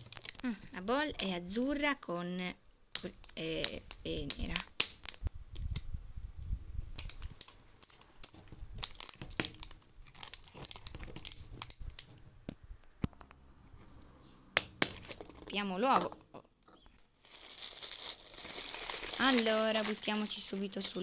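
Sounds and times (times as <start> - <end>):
plastic wrapping crinkling and tearing: 7.0 - 12.1, 14.8 - 15.5, 17.0 - 21.0.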